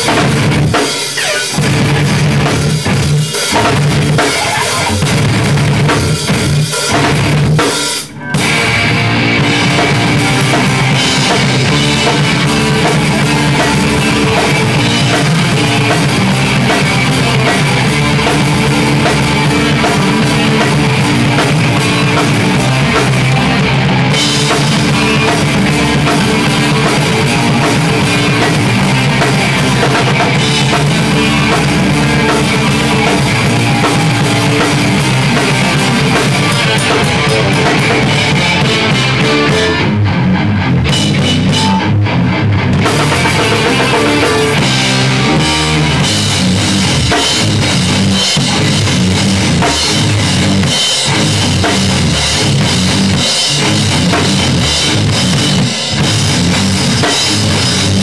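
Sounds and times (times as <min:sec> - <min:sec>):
rock band playing live: 0:00.0 - 0:58.0.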